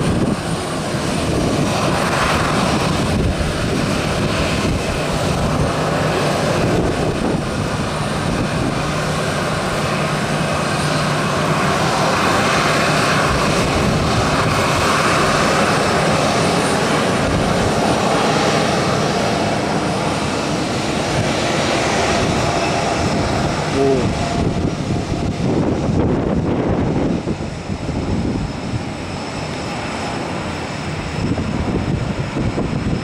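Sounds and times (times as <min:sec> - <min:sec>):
jet airliner engines: 0:00.0 - 0:33.0.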